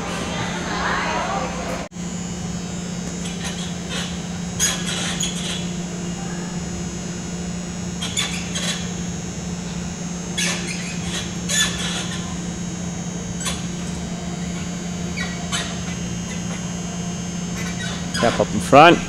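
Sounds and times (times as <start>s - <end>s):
gymnastic bars squeaking: 0.0s - 19.0s
steady low hum: 0.0s - 19.0s.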